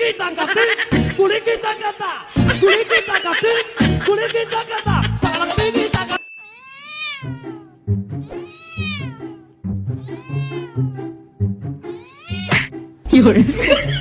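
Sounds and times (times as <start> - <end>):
cat meowing: 6.4 - 11.2, 11.9 - 12.7
background music with steady beat: 9.6 - 14.0.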